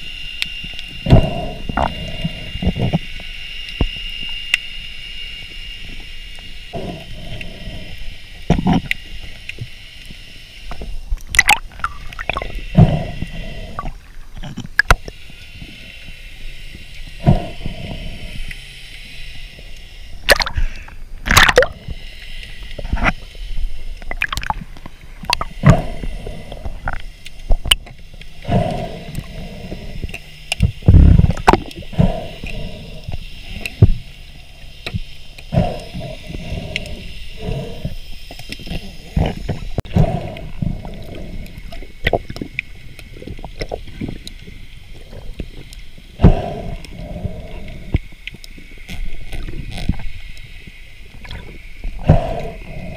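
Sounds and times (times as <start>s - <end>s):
underwater water noise: 0.0s - 52.9s
knocks and clicks underwater: 0.6s - 4.6s, 8.4s - 9.7s, 10.7s - 15.8s, 20.2s - 22.0s, 22.7s - 23.3s, 24.0s - 34.1s, 37.8s - 50.4s, 51.1s - 52.7s.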